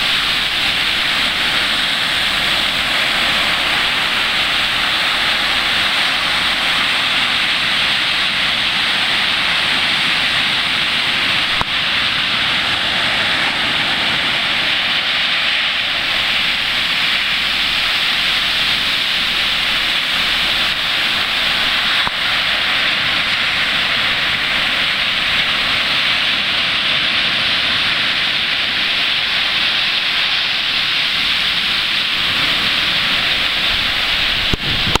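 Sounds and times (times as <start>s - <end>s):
ocean surf breaking: 0.0s - 35.0s.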